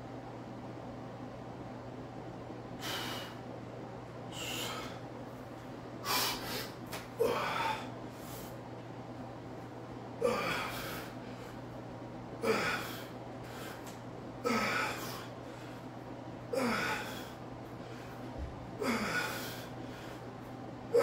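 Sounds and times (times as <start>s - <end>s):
man exhaling forcefully with grunts: 10.2s - 11.1s.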